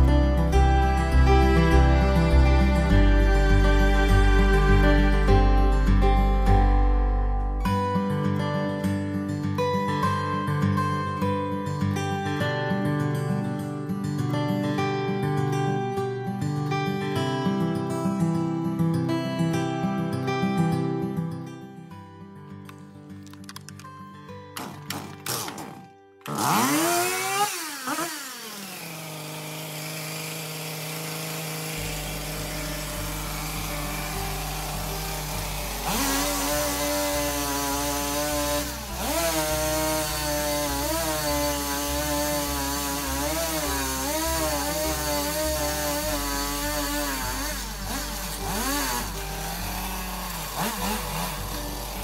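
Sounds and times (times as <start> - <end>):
chainsaw revving and idling: 0.0 - 6.1, 24.6 - 52.0
chainsaw starting pull: 22.7 - 24.0, 24.6 - 52.0.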